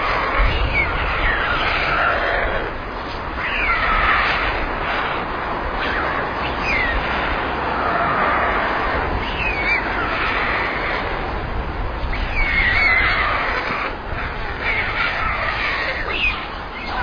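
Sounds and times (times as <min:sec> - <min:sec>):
steady rushing noise: 0:00.0 - 0:17.0
young storks calling: 0:00.0 - 0:17.0.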